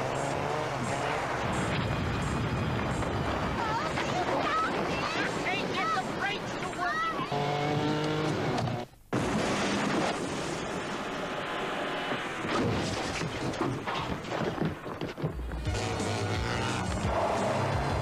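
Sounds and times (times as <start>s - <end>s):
booms and crashing impacts: 9.1s - 11.2s.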